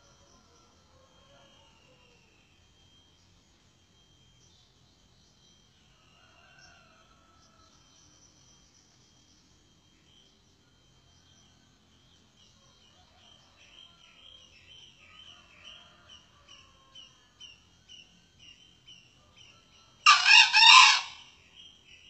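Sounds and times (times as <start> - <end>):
faint steady chirping: 0.0 - 22.0
rooster crowing: 0.5 - 2.3, 6.0 - 7.7, 20.0 - 21.3.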